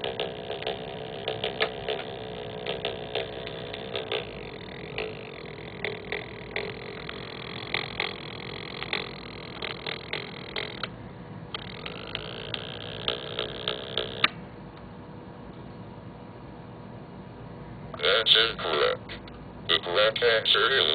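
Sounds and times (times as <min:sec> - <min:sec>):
electronic clicks and buzzy pops: 0:00.0 - 0:14.8.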